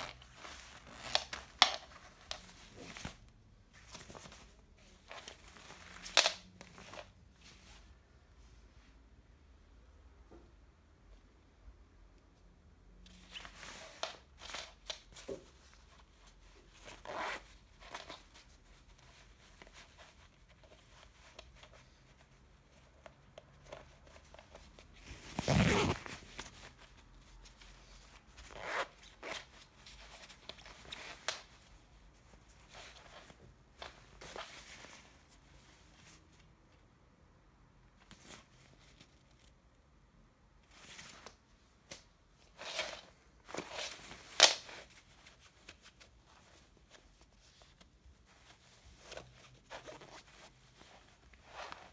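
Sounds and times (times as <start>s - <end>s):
pocket zip: 0.0s - 1.7s, 16.8s - 17.4s, 25.2s - 26.4s, 28.4s - 29.5s
jacket fabric rustling: 0.0s - 8.4s, 13.1s - 36.9s, 40.5s - 51.9s.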